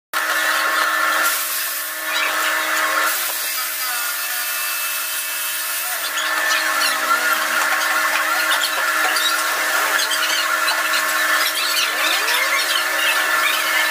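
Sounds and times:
laser cutter hum and whine: 0.2s - 13.9s
hiss: 1.2s - 1.9s.

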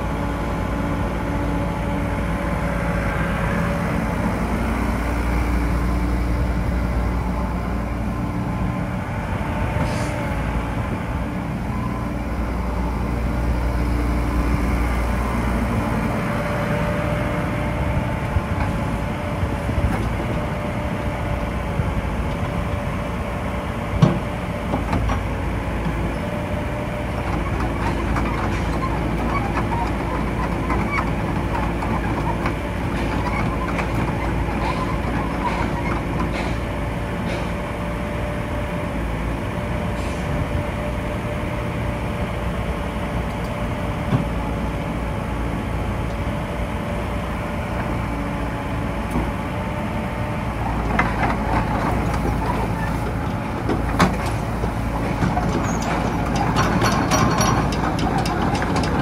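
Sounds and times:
excavator diesel engine running: 0.0s - 59.0s
steel tracks clanking: 24.0s - 37.9s, 50.5s - 59.0s.

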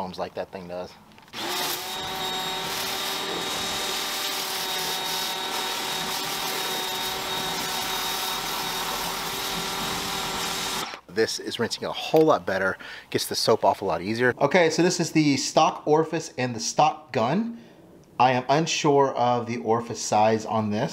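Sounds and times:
pressure washer motor whine: 1.4s - 11.0s.

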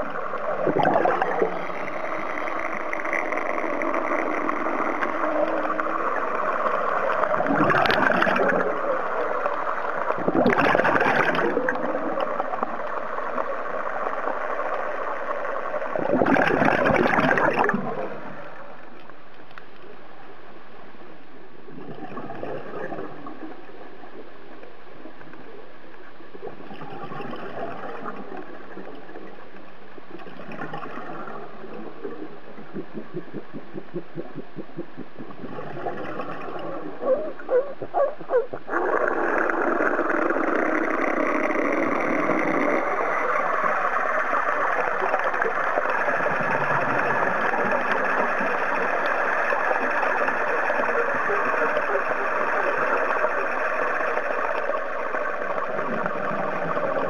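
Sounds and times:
exhaled bubbles: 0.0s - 18.8s, 21.6s - 24.4s, 26.3s - 57.0s
steady churning noise: 0.0s - 19.2s, 38.5s - 57.0s.

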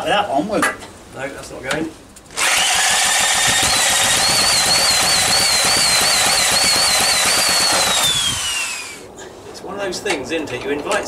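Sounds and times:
electric drill whine: 2.3s - 9.1s.

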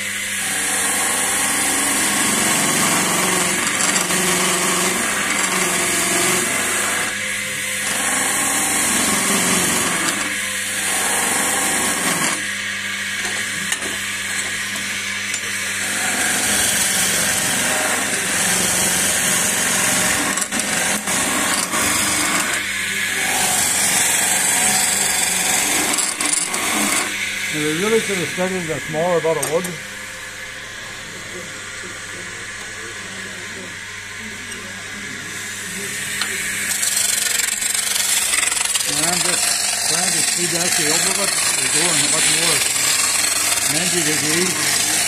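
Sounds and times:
chisel cutting wood on lathe: 0.0s - 29.8s, 34.0s - 45.0s
lathe motor hum: 0.0s - 45.0s.

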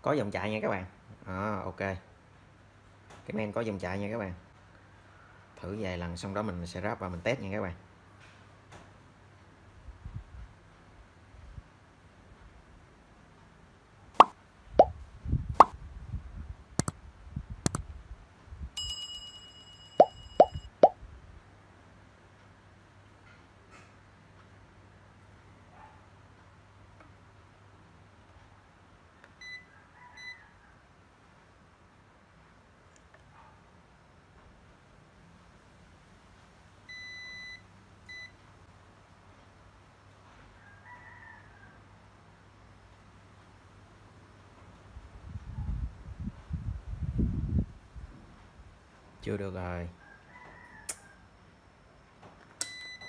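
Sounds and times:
short pops dropping in pitch: 14.2s - 14.9s, 20.0s - 21.0s
bell chiming: 18.8s - 20.7s
high electronic beeps: 20.0s - 20.9s
distant rooster crow: 29.5s - 31.1s, 40.4s - 42.1s, 50.0s - 51.6s.

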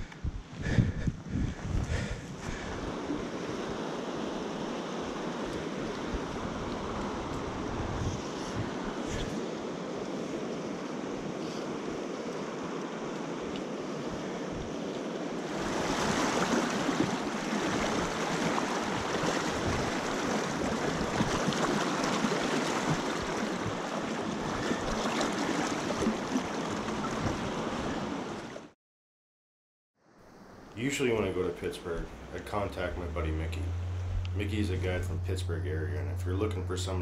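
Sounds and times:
river water rushing: 8.7s - 28.6s.

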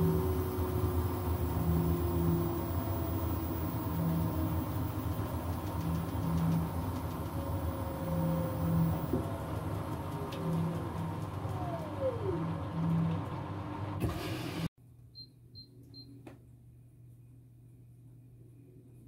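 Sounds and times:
washing machine spin cycle: 0.0s - 14.7s.

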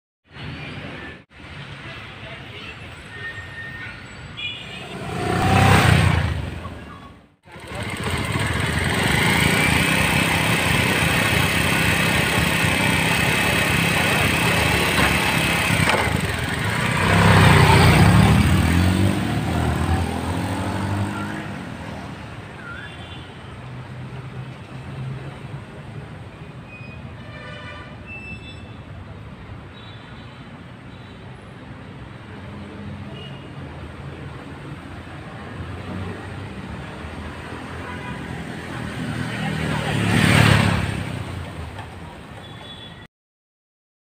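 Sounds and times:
motorcycle engine whining: 7.5s - 21.6s.

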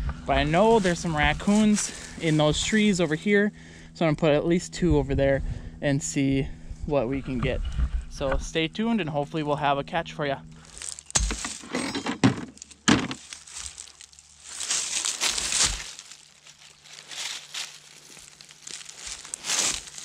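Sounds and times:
dry leaves crunching and rustling: 0.3s - 3.4s, 10.6s - 11.7s, 12.5s - 20.0s.

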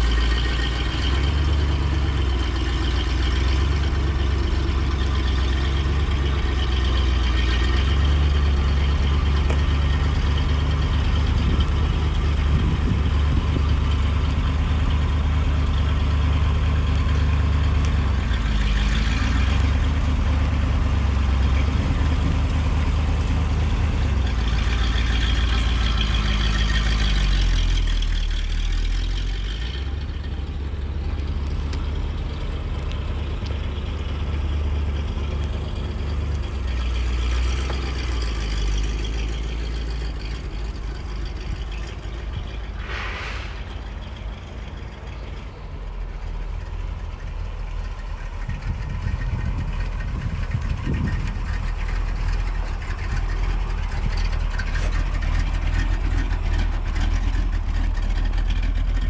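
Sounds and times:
car driving off: 0.0s - 59.0s
car engine low exhaust note: 0.0s - 59.0s.

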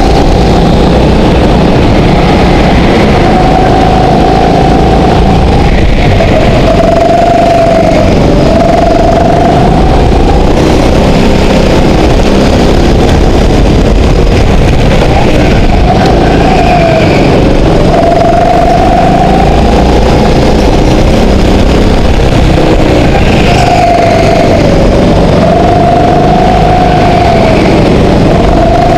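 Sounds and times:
go-kart engine running hard: 0.0s - 28.9s.

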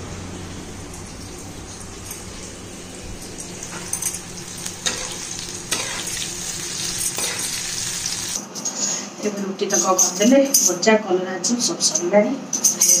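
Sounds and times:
vegetable slices sizzling in oil: 3.5s - 8.4s.

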